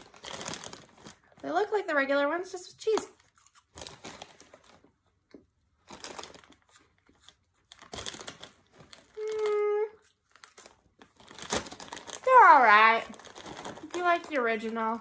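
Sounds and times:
plastic snack bag crinkling: 0.0s - 15.0s
crunchy snack being chewed: 3.2s - 4.4s.

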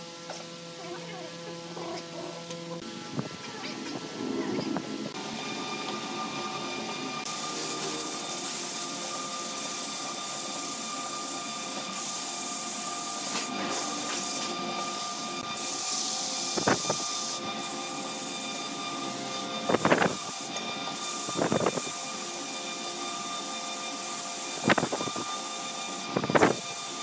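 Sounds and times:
lathe humming: 4.0s - 26.3s
sandpaper rasping on spinning wood: 7.2s - 27.0s.

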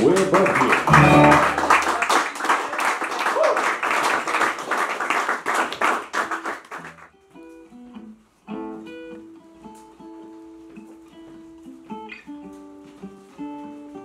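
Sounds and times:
acoustic blues guitar: 0.0s - 2.0s, 6.3s - 14.0s.

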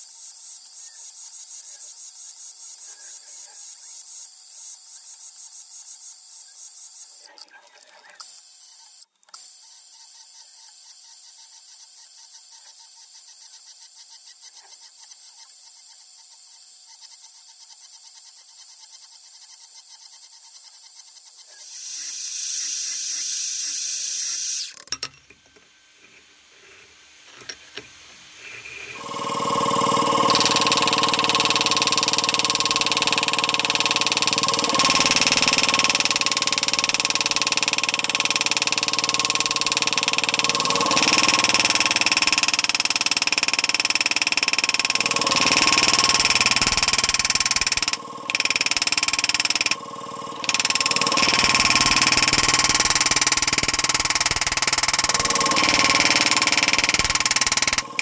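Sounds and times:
electric drill running: 21.6s - 24.8s, 28.8s - 58.0s.

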